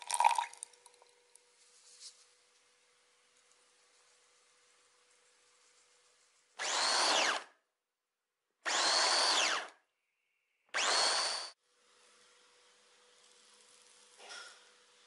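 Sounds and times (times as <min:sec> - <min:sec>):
food processor motor whining: 0:06.6 - 0:07.4, 0:08.7 - 0:09.7, 0:10.8 - 0:11.6.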